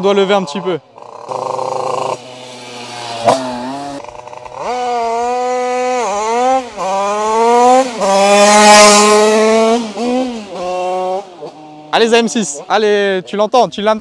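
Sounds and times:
motorcycle engine revving: 0.0 - 13.3.

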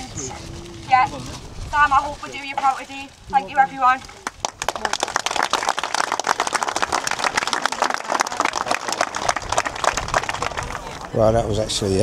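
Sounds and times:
crowd applauding: 4.2 - 11.4.

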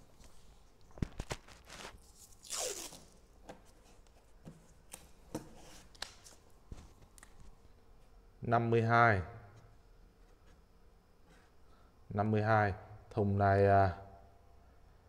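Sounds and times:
masking tape tearing: 1.2 - 3.2.

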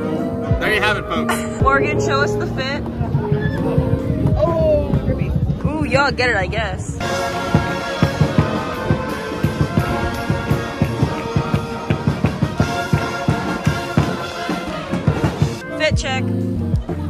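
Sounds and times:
brass horns holding chords: 0.0 - 4.4, 7.0 - 16.8
marching band playing: 0.0 - 16.5
quick steady drum beat: 3.7 - 16.2.

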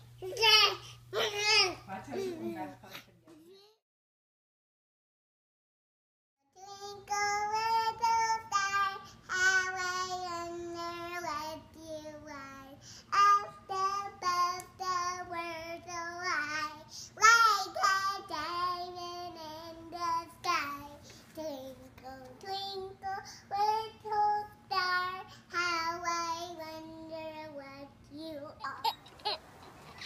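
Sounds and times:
girl singing: 6.5 - 28.8.

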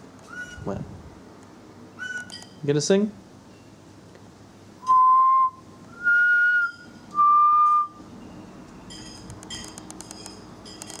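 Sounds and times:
long whistled notes: 4.8 - 8.0.

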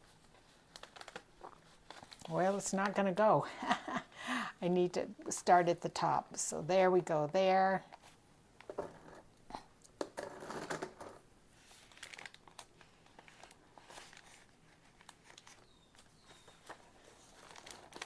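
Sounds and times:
paper rustling and crinkling: 0.0 - 3.0, 11.6 - 18.0.

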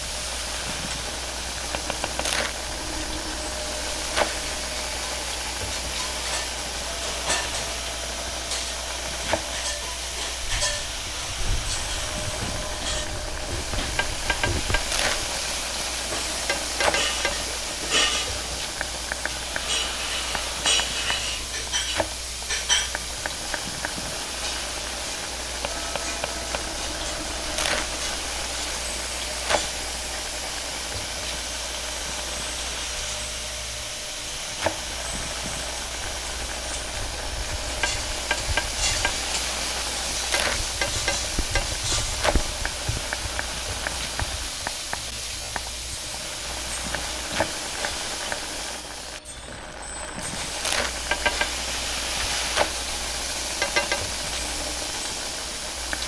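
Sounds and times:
noodles sizzling in a wok: 0.0 - 56.0
metal utensils striking a wok: 1.1 - 33.6.

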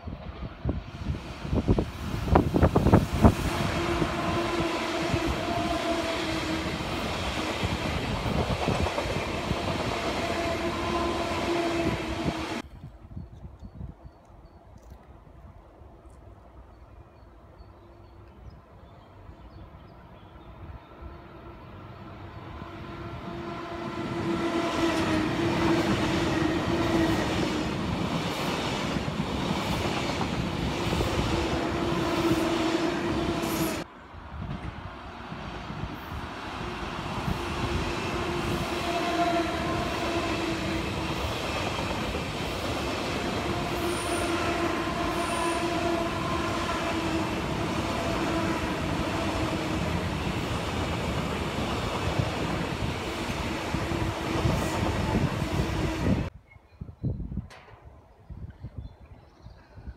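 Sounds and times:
electric train passing: 0.0 - 12.6, 19.1 - 56.3.

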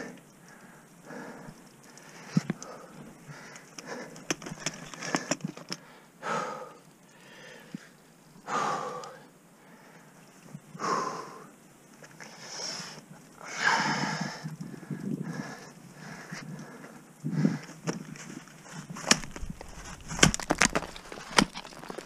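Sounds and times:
person breathing hard: 0.0 - 10.1, 10.8 - 11.5, 12.2 - 17.8.

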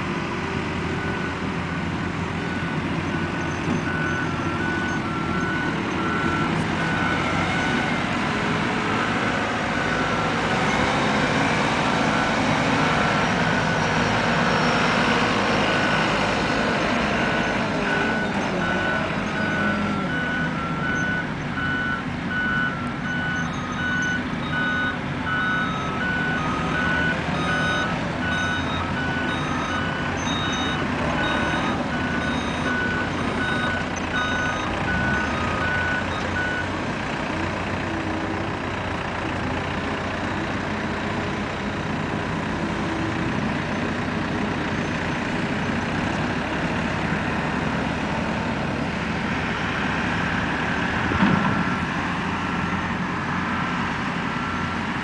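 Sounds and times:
diesel engines running: 0.0 - 55.0
back-up alarms beeping: 17.2 - 36.7.

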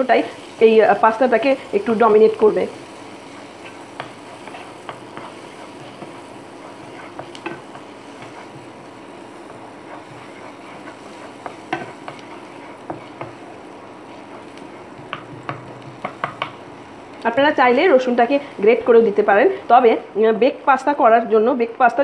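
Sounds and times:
garlic sizzling in butter: 0.0 - 20.8
spatula tapping and scraping pan: 3.2 - 16.7.

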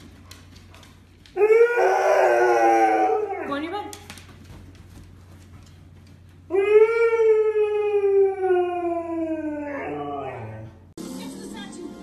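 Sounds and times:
husky howling: 1.3 - 3.7, 6.5 - 10.8.

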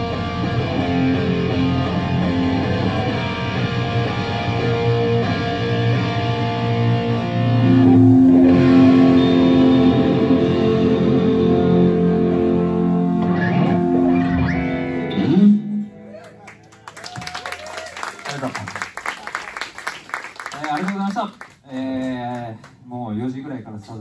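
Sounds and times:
rock band playing live: 0.0 - 16.1.

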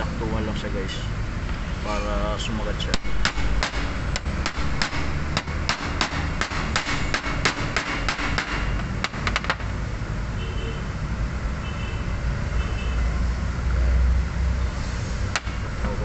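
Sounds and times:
hammer tapping metal: 2.9 - 9.6.

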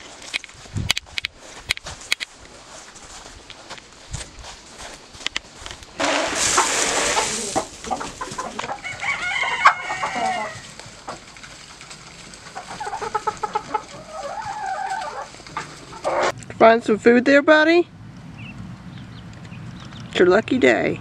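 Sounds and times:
rustling noise: 0.0 - 16.4
chickens clucking: 6.0 - 16.4.

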